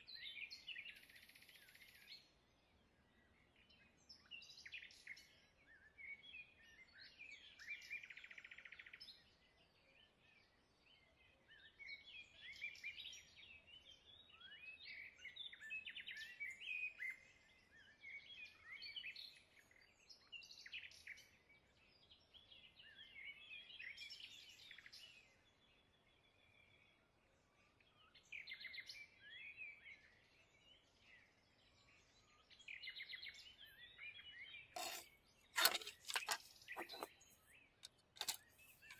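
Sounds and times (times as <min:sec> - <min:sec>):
small birds chirping: 0:27.8 - 0:38.9.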